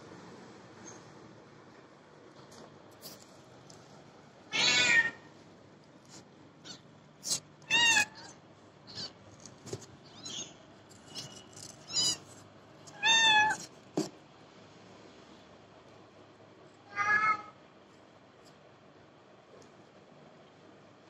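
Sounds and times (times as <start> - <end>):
soft clicks and rustles: 1.7 - 4.1
kittens mewing: 6.6 - 9.2, 11.6 - 12.3.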